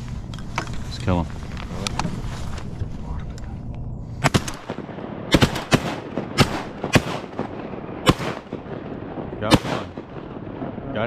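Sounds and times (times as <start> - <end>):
shotgun shots: 4.2 - 10.8.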